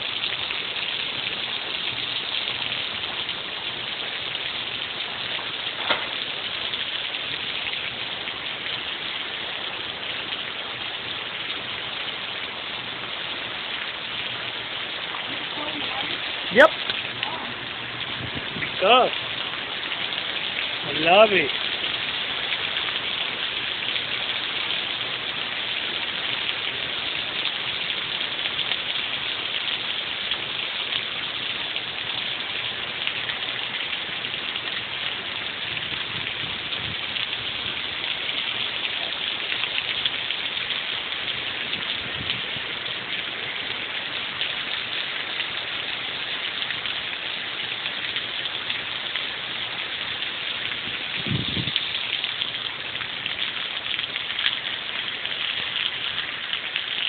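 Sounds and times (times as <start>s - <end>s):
heavy rain on asphalt: 0.0s - 57.0s.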